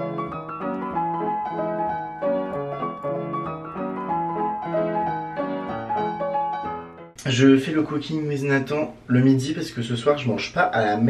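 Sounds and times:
piano music: 0.0 - 8.2.

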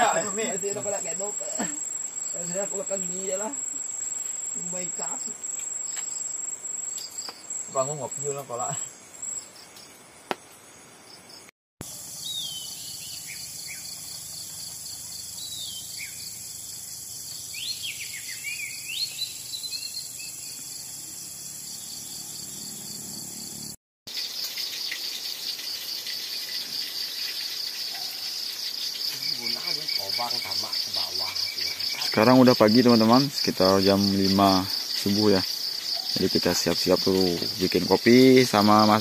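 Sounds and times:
insects chirring: 0.0 - 39.0
whistled bird calls: 12.2 - 13.9, 17.5 - 20.5.

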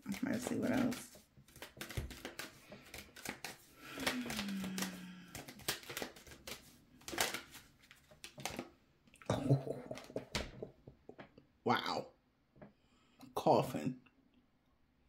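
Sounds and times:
cards being shuffled: 0.0 - 8.7.

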